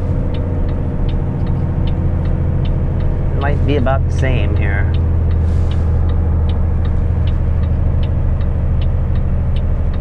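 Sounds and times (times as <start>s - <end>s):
truck diesel engine droning: 0.0s - 10.0s
light ticking: 0.2s - 10.0s.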